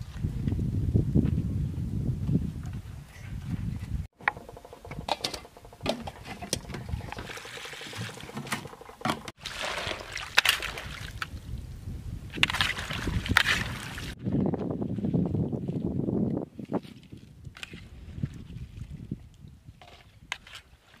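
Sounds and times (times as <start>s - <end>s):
water splashing in metal basin: 4.4s - 11.2s.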